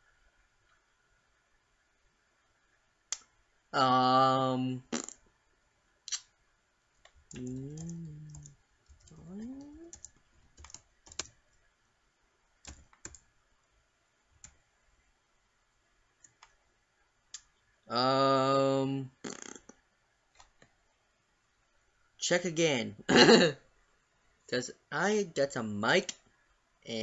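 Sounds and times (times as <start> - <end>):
person making wordless vocal sounds: 3.8 - 5.1, 7.3 - 10.0.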